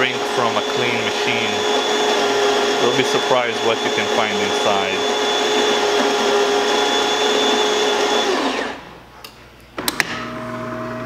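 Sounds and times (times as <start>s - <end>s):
coffee grinder running: 0.0s - 8.8s.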